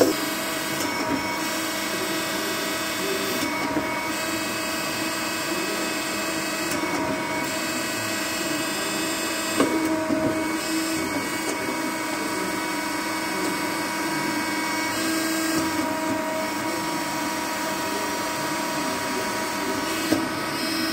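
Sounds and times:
bandsaw whining: 0:00.0 - 0:00.6.

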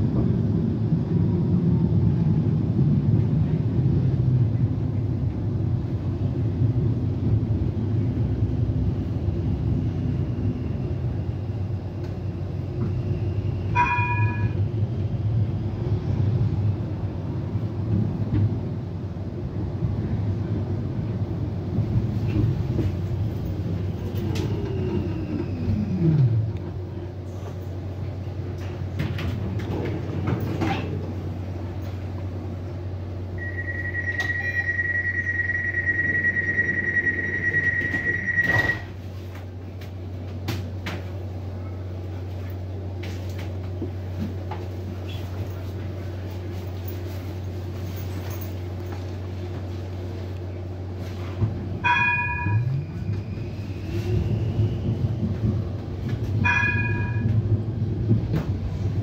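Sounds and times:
tram drive whine: 0:00.0 - 0:59.0
high door warning tone: 0:13.7 - 0:14.6, 0:33.4 - 0:39.0
tram doors shutting thump: 0:37.5 - 0:39.0.

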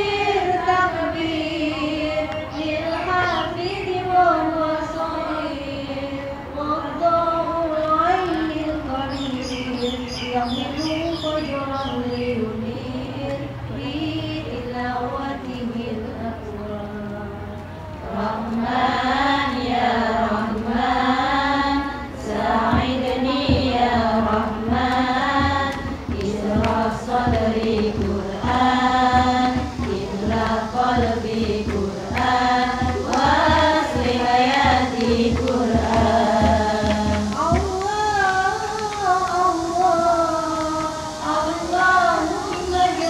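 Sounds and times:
women singing together: 0:00.0 - 0:43.0
hand drum beats: 0:22.6 - 0:39.6.

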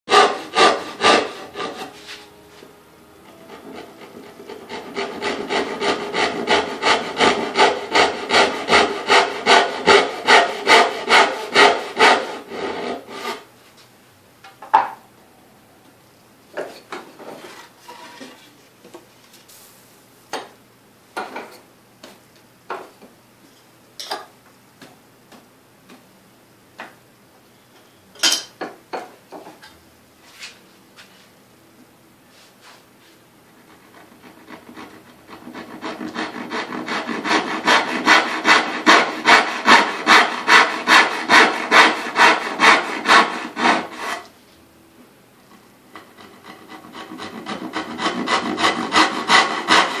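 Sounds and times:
hand saw cutting wood: 0:00.1 - 0:02.2, 0:03.3 - 0:13.5, 0:33.7 - 0:44.3, 0:45.9 - 0:50.0.

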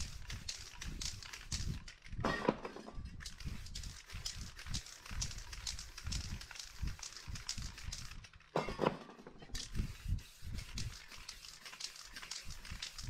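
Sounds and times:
spray paint can hissing: 0:00.0 - 0:01.9, 0:03.2 - 0:08.2, 0:09.6 - 0:13.0.

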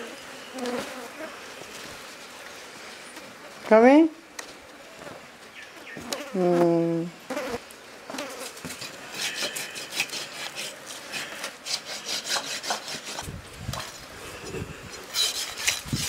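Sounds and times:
rasping scraping strokes: 0:08.4 - 0:16.0.

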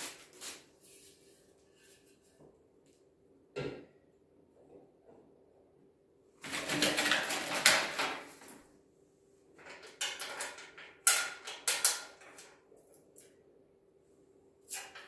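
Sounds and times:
plastic wrapping rustling: 0:00.0 - 0:01.2.

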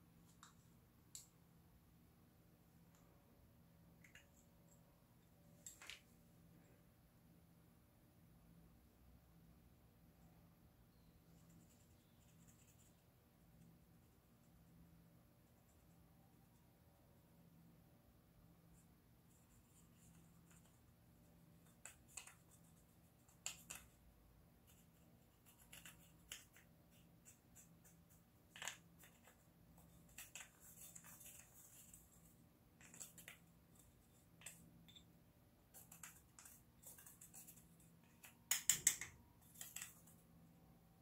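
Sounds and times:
plastic spoon scraping and tapping: 0:32.8 - 0:40.2.

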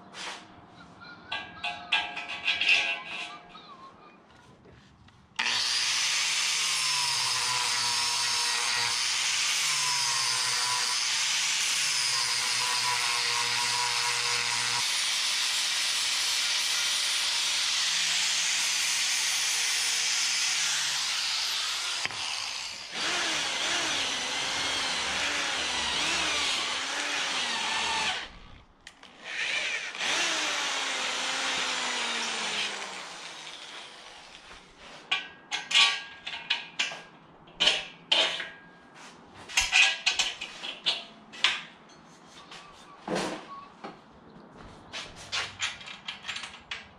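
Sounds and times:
angle grinder sanding wood: 0:05.4 - 0:28.4, 0:29.2 - 0:34.6.

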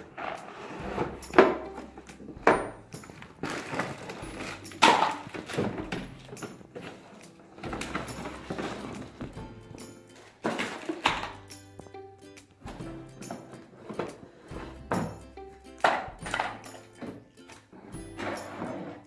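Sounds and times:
cardboard rustling: 0:03.1 - 0:09.4.

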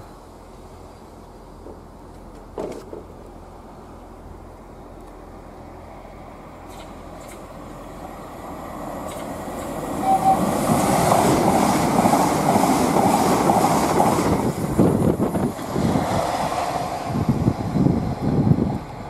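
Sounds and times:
electric train rushing past: 0:05.6 - 0:19.0
wheels clattering over rail joints: 0:08.9 - 0:16.2.

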